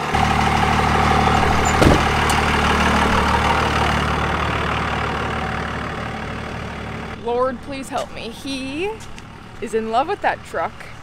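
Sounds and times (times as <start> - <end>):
truck engine idling: 0.0 - 11.0
truck door shutting: 0.9 - 3.8.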